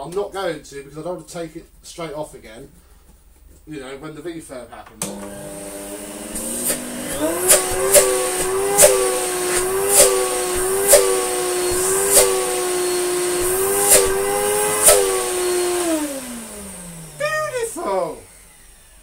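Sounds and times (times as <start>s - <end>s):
vacuum cleaner motor humming: 5.0s - 19.0s
sharp pops: 6.5s - 11.2s.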